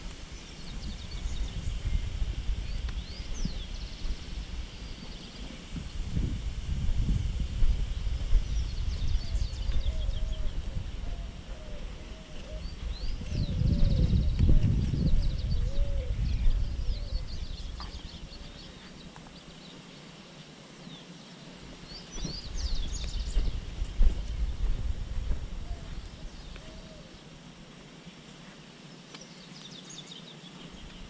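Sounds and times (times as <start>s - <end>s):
small birds chirping: 0.0s - 6.0s, 7.4s - 27.4s, 28.0s - 31.0s
wind rumble on microphone: 0.0s - 19.2s, 21.7s - 27.2s
low repeated bird call: 7.9s - 28.2s.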